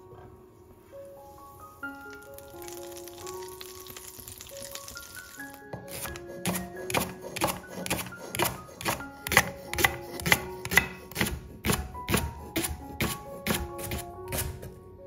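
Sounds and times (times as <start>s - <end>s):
background music: 0.0s - 15.0s
knife chopping on wooden board: 5.8s - 14.8s.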